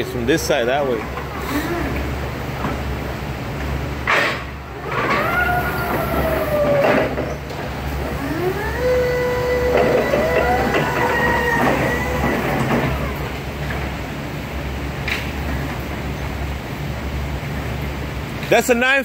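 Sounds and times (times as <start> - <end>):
steady low hum: 0.0 - 18.5
high squealing tones: 4.8 - 13.4.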